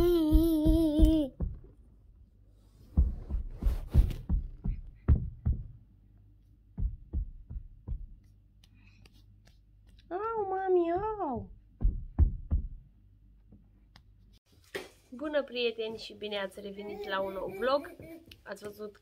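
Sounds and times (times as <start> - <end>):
soft thumps and rubbing on microphone: 2.7 - 5.8.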